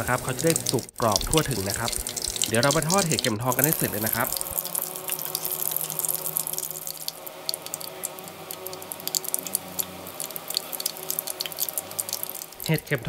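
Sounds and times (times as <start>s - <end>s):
food deep-frying in hot oil: 0.0s - 13.0s.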